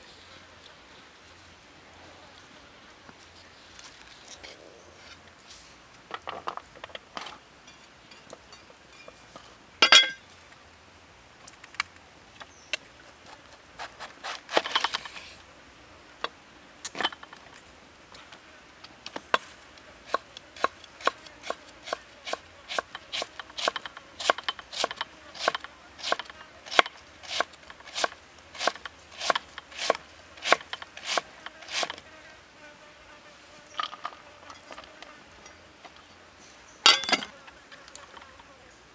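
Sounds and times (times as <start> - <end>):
knife chopping cabbage on wood: 20.1 - 31.9.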